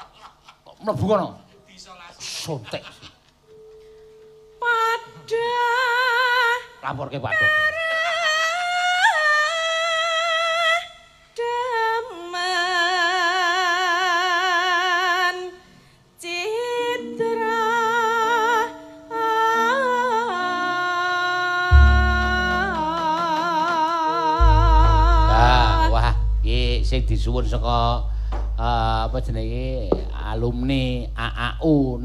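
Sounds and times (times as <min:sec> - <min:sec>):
woman singing with vibrato: 0:04.6 - 0:06.8, 0:07.4 - 0:15.6, 0:16.2 - 0:26.2
heavy deep low sound: 0:21.7 - 0:23.2, 0:24.4 - 0:32.0
steady instrumental notes: 0:21.7 - 0:32.0.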